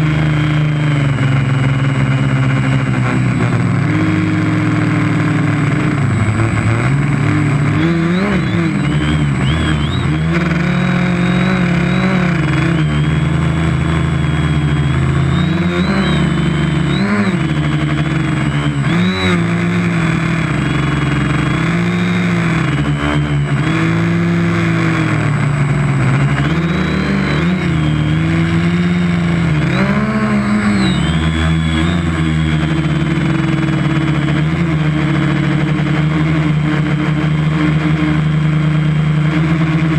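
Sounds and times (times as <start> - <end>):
drone motors whining: 0.0 - 39.9.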